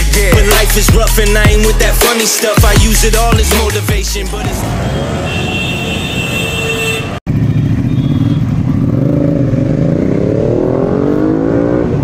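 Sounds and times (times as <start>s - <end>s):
motorcycle engine accelerating: 7.3s - 12.0s.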